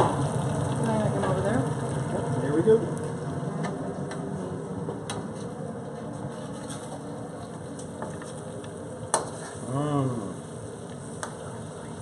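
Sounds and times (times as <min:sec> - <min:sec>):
food sizzling: 0:00.0 - 0:05.5, 0:06.4 - 0:12.0
metal spatula scraping a wok: 0:06.3 - 0:07.0, 0:09.2 - 0:09.6
man humming: 0:09.6 - 0:10.5.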